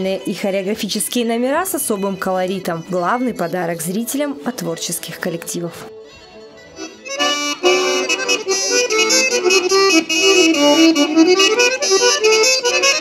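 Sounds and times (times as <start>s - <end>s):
folk tune on reed pipes: 5.9s - 13.0s.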